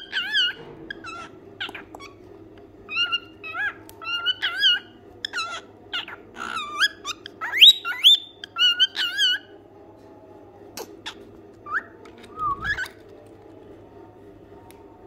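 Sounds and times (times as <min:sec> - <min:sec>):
cockatiel chirping and whistling: 0:02.9 - 0:09.5.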